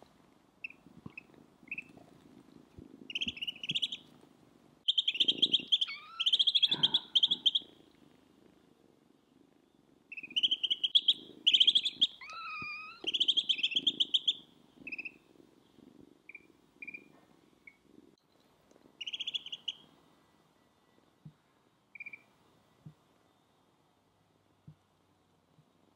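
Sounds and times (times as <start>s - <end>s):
ducklings peeping: 3.1s - 4.0s, 4.9s - 7.6s, 10.1s - 15.2s, 19.0s - 19.8s
kitten meowing: 5.6s - 7.4s, 12.0s - 14.0s.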